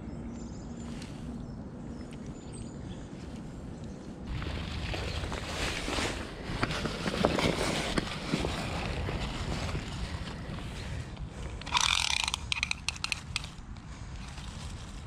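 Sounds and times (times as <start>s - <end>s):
dry leaves crackling: 4.3s - 11.0s, 11.8s - 15.0s.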